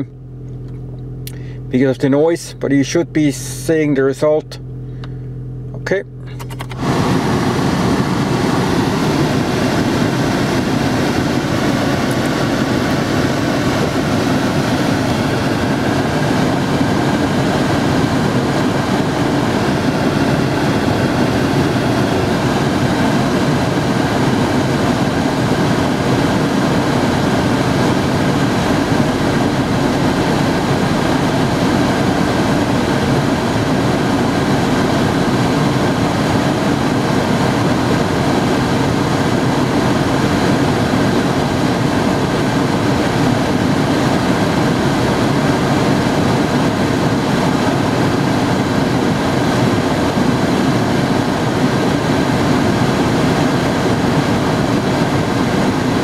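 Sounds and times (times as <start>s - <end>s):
air conditioning fan blowing: 0.0s - 56.0s.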